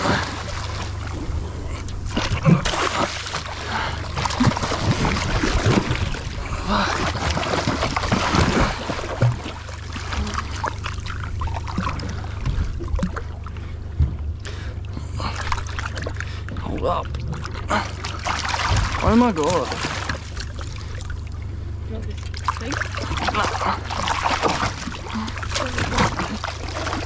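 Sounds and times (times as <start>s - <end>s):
boat engine idling: 0.0s - 27.0s
water splashing and sloshing: 0.0s - 27.0s
knocks on hull: 18.5s - 20.3s.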